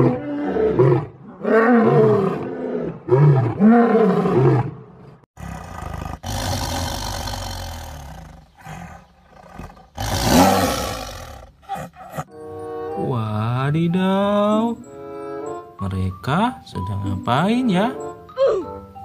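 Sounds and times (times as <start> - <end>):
lion roaring: 0.0 - 12.3
tiger snarling: 0.0 - 12.3.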